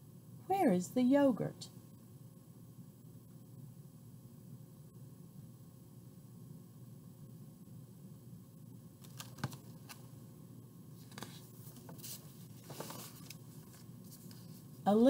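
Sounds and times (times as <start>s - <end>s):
paper rustling: 9.0s - 10.0s, 11.0s - 14.8s.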